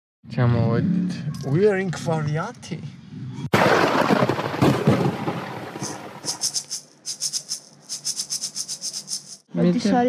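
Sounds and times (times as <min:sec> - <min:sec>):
shaker rhythm: 0:05.8 - 0:09.5.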